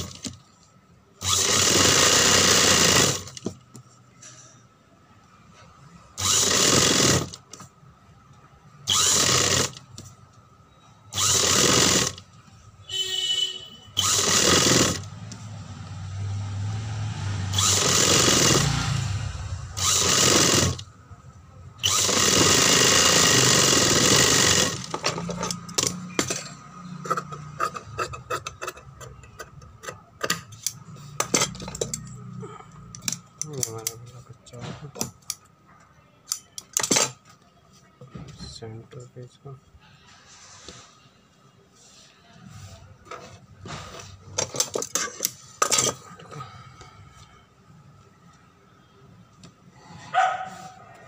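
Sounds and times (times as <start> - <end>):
sewing machine stitching: 1.2 - 3.5, 6.2 - 7.7, 8.9 - 10.1, 11.1 - 12.3, 14.0 - 15.2, 17.5 - 19.0, 19.7 - 20.9, 21.8 - 32.0.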